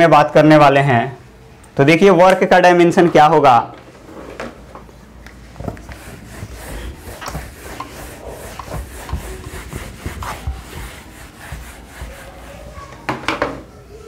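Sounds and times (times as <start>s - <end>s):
eraser rubbing whiteboard: 5.6s - 13.1s.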